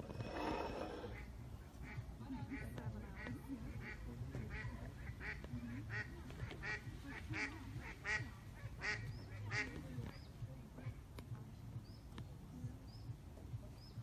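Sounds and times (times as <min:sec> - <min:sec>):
waterfowl calling: 0:00.3 - 0:09.8.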